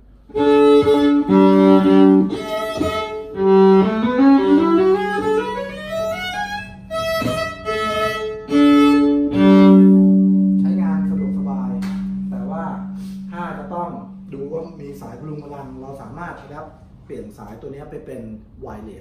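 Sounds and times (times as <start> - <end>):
amplified bowed violin: 0.2 - 16.0.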